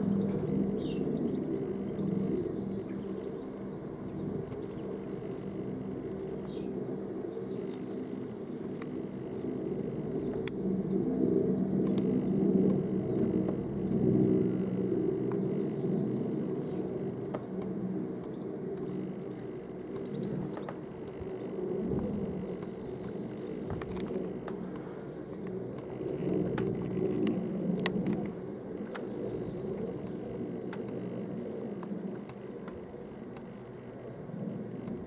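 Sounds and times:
helicopter rotor and engine drone: 0.0s - 35.0s
faint clicks: 29.8s - 33.6s.

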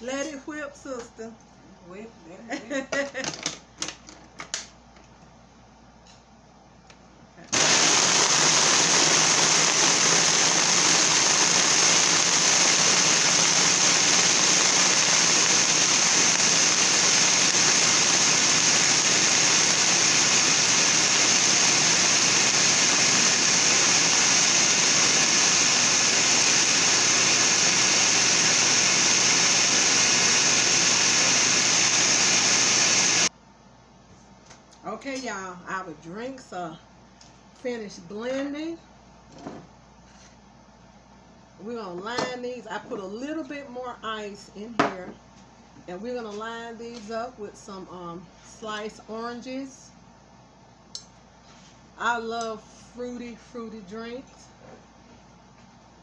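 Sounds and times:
blender crushing ice: 7.5s - 33.3s.

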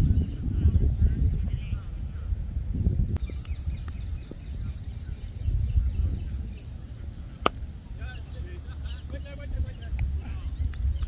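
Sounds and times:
birds chirping: 0.0s - 11.0s
sharp crack: 7.4s - 7.7s.

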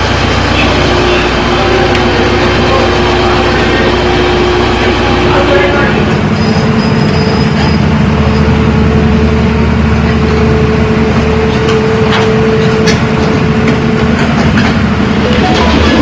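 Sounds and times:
excavator diesel engine droning: 0.0s - 16.0s
excavator tracks clanking: 6.2s - 8.8s, 9.9s - 16.0s.

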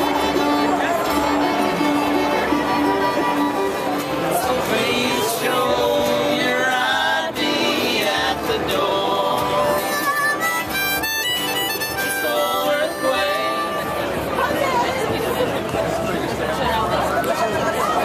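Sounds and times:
harmonica high notes: 0.0s - 4.3s, 9.7s - 14.2s
strummed acoustic guitar: 0.0s - 17.8s
voices singing together: 4.2s - 10.3s, 12.0s - 14.2s.

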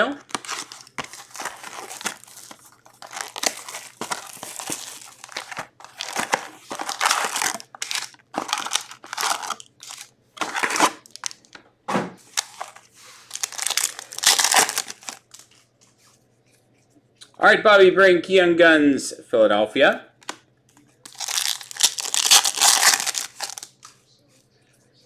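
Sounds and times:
wrapping tearing: 0.0s - 11.5s, 12.3s - 15.5s, 21.1s - 23.8s
plastic wrapping crinkling: 0.0s - 11.6s, 12.3s - 15.7s, 21.0s - 23.9s.

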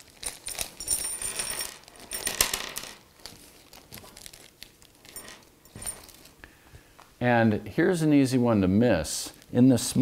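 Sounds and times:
plastic bag crinkling: 0.0s - 2.3s, 3.0s - 6.4s
metal screws clinking on table: 0.2s - 3.0s, 5.0s - 6.3s.

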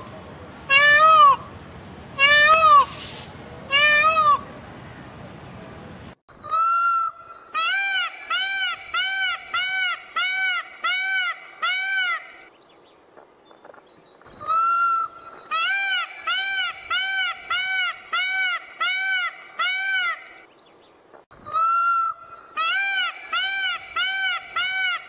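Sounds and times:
peafowl honking calls: 6.4s - 12.5s, 14.4s - 20.5s, 21.4s - 25.0s.

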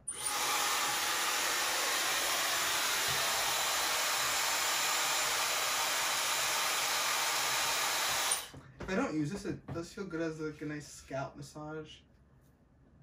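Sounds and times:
hair dryer blowing with whine: 0.0s - 8.6s.

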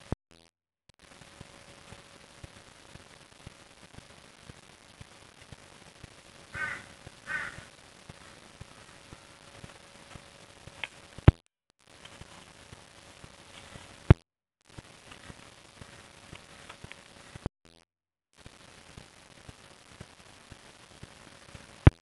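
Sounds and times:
crow cawing: 6.5s - 7.7s.

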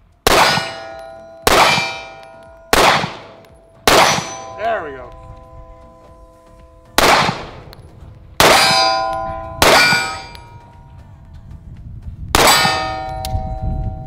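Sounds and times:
pistol shots: 0.2s - 5.3s, 7.0s - 7.8s, 8.4s - 10.5s, 12.3s - 13.0s
steel plate ringing: 0.3s - 7.0s, 8.4s - 10.8s, 12.4s - 14.0s.

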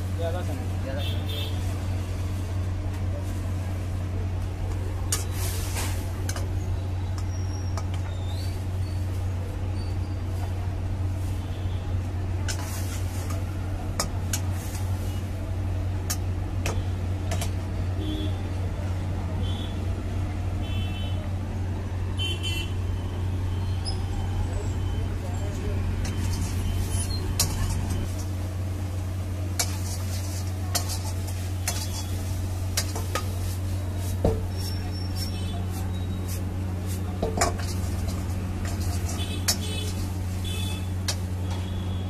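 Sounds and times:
metal spatula scraping wok: 12.5s - 13.4s, 25.6s - 28.6s, 29.2s - 41.6s.

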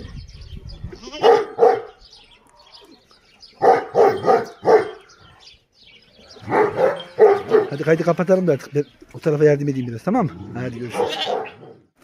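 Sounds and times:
dog barking: 1.2s - 2.0s, 3.6s - 5.1s, 6.4s - 7.8s, 10.9s - 11.8s.

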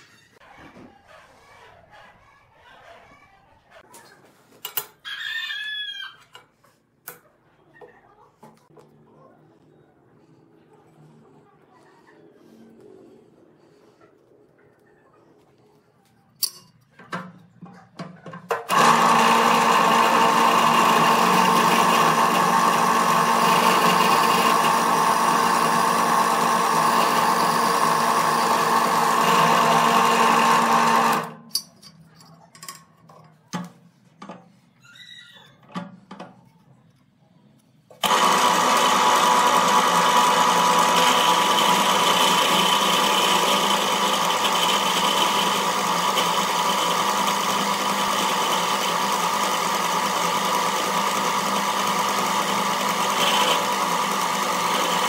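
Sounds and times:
drill press motor hum: 18.5s - 31.4s, 38.0s - 55.0s.

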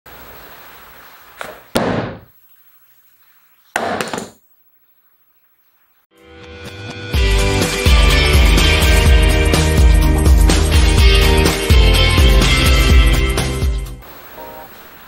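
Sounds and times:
thuds on cardboard box: 1.8s - 2.3s
music: 6.1s - 14.7s
soft hiss: 14.0s - 15.0s.

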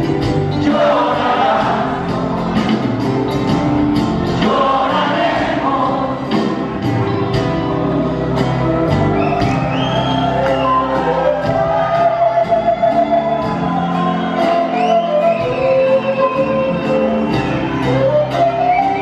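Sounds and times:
bass and guitars: 0.0s - 19.0s
drum kit beat: 0.0s - 19.0s
flute melody: 7.2s - 19.0s.

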